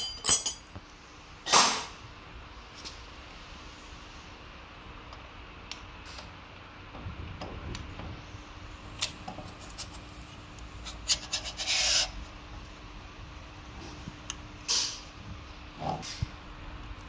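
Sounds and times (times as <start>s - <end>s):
scraping rub: 10.8s - 12.1s.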